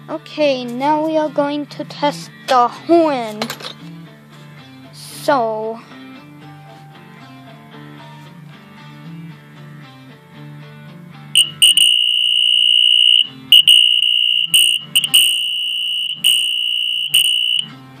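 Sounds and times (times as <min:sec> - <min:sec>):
fire alarm horn blasts: 0:11.4 - 0:17.7
guitar music: 0:11.4 - 0:17.9.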